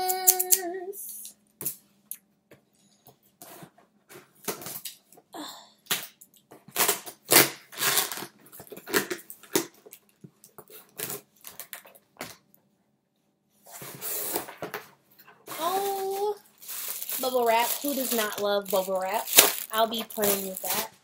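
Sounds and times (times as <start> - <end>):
scissors cutting packing tape: 6.7 - 9.6, 17.1 - 20.9
cardboard and packaging rustling: 13.7 - 21.0.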